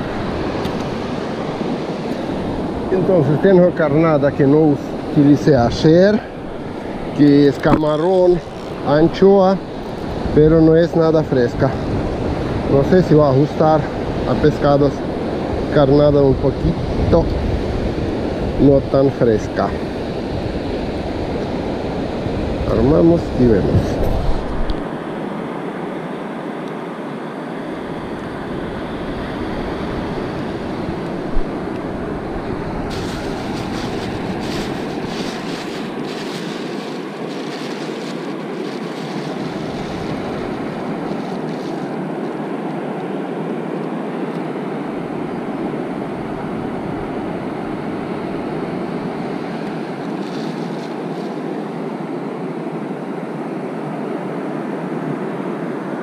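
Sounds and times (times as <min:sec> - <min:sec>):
wind rumbling on microphone: 0:00.0 - 0:25.3, 0:27.7 - 0:43.1, 0:44.8 - 0:52.2
surf breaking on beach: 0:28.3 - 0:43.4, 0:45.1 - 0:52.2.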